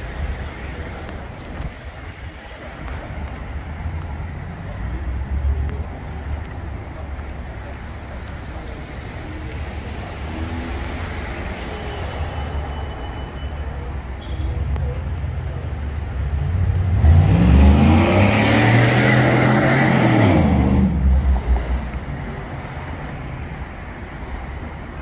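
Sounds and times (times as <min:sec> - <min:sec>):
street traffic rumbling: 0:00.0 - 0:25.0
truck engine passing: 0:16.3 - 0:21.8.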